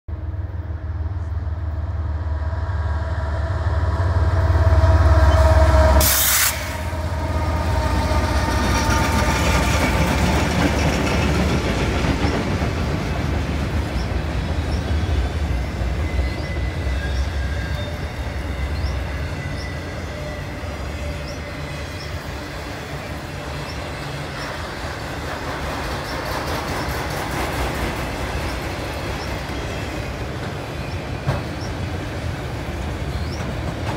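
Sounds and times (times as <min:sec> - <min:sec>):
diesel locomotive rumble: 0:00.1 - 0:33.9
freight cars rolling and rattling: 0:07.3 - 0:33.9
train wheel clicks: 0:25.2 - 0:29.6.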